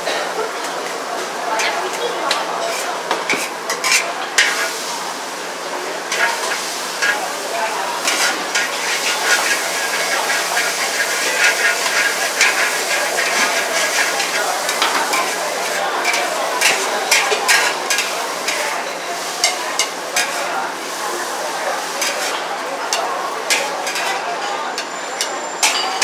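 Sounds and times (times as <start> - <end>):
noodles sizzling in a wok: 0.6 - 26.0
metal spatula scraping a wok: 2.6 - 4.8, 6.1 - 7.3, 8.0 - 21.0, 21.8 - 26.0.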